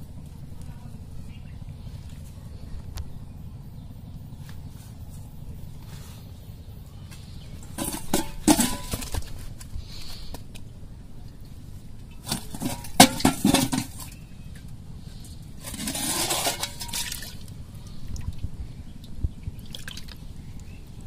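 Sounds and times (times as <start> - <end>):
fish knocking against metal bowl: 12.3 - 14.2
water splashing: 19.6 - 20.2.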